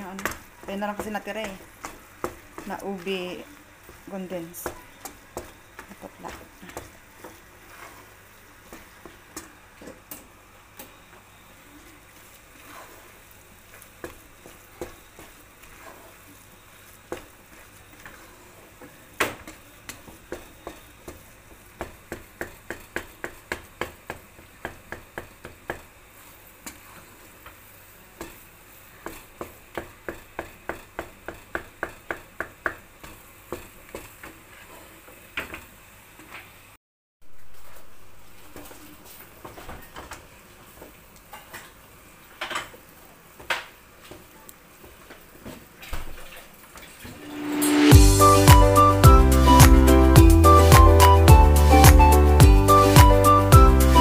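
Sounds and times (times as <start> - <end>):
spatula tapping pan: 0.0 - 3.1, 3.8 - 7.5, 19.2 - 25.9, 29.0 - 34.1.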